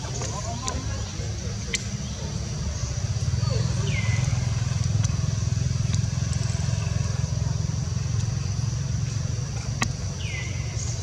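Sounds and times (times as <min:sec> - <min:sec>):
high insect drone: 0:00.0 - 0:11.0
vehicle engine idling: 0:00.0 - 0:11.0.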